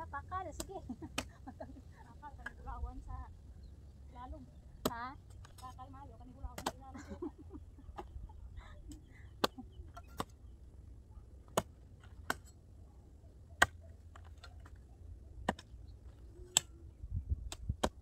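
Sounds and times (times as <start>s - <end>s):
hoes chopping into soil: 0.5s - 1.4s, 6.4s - 6.9s, 8.9s - 10.5s, 11.4s - 12.6s, 13.6s - 14.8s, 15.4s - 16.7s, 17.4s - 18.0s.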